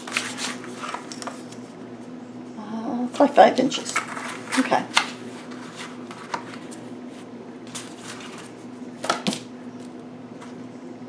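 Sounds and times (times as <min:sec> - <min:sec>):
paper tapping and rustling: 0:00.0 - 0:01.6, 0:04.0 - 0:06.8
faint steady hum: 0:00.0 - 0:11.0.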